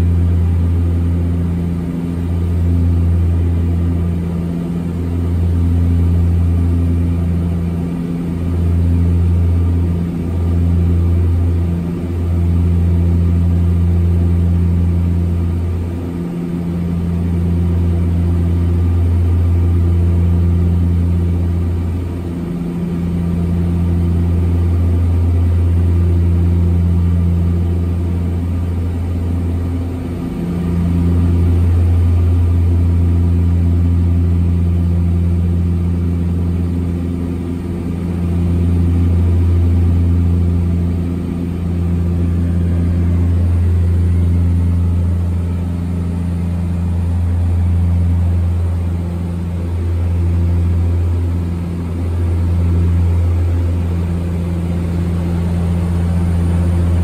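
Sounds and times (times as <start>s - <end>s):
turboprop engine drone in cabin: 0.0s - 57.0s.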